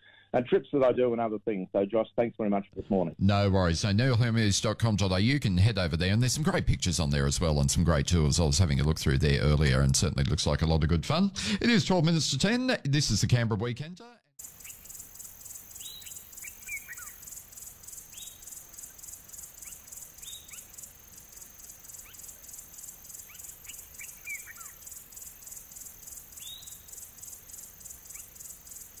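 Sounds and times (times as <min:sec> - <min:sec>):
pulsing high insect trill: 0:14.4 - 0:29.0
bird chirps and whistles: 0:15.8 - 0:17.2, 0:23.3 - 0:24.8, 0:26.4 - 0:26.9.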